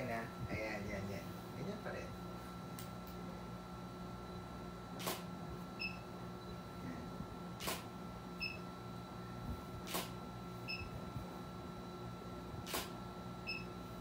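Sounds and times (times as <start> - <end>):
low electrical hum: 0.0 - 14.0
camera shutter clicking: 5.0 - 5.3, 7.6 - 7.9, 9.9 - 10.2, 12.7 - 13.0.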